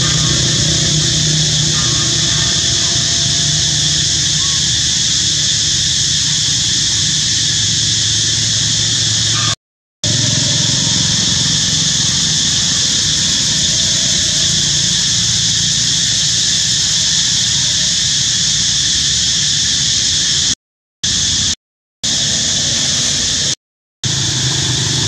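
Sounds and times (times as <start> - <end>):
low rumble: 0.0 - 9.4
high hiss: 0.0 - 25.0.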